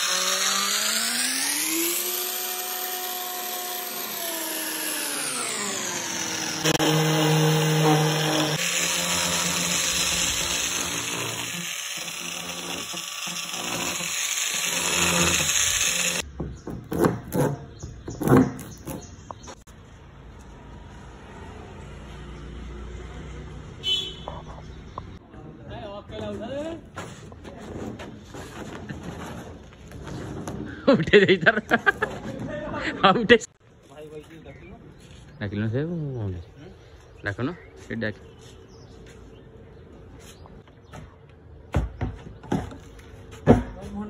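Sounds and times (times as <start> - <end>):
electric drill whining: 0.0 - 16.3.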